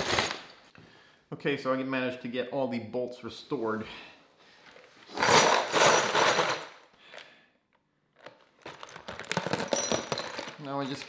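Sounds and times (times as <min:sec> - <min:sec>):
bolts rattling in plastic tub: 0:08.7 - 0:11.0.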